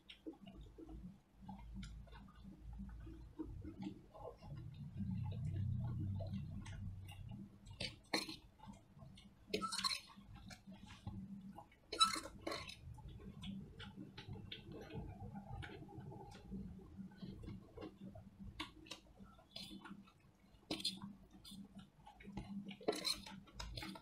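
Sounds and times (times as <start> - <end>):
spoon scraping steel plate: 9.6 - 10.1, 12.0 - 12.8, 22.9 - 23.3.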